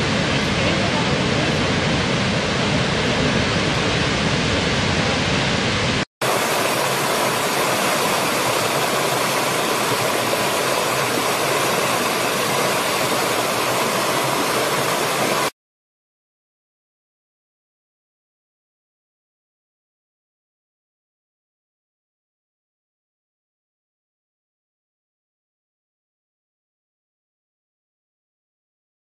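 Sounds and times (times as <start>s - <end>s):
large waterfall roaring: 0.0s - 15.5s
rocky stream rushing and splashing: 6.2s - 15.5s.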